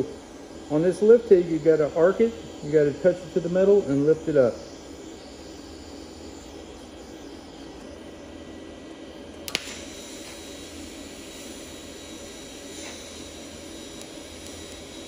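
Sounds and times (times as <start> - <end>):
welding arc hissing: 0.0 - 15.0
sharp crack of arc striking: 9.4 - 10.5.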